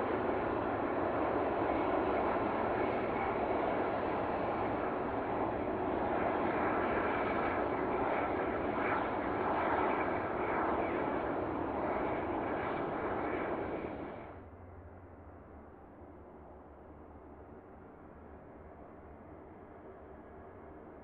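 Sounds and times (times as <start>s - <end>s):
jet engines roaring: 0.0s - 14.4s.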